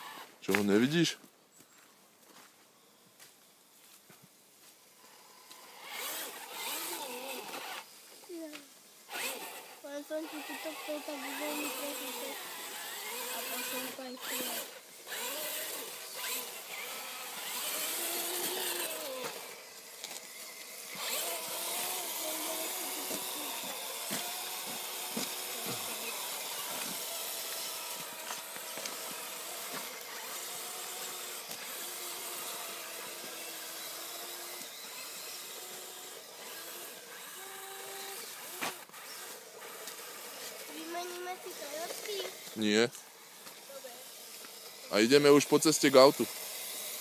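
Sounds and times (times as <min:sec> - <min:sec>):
toy truck electric motor whining: 0:00.0 - 0:00.4, 0:04.9 - 0:47.0.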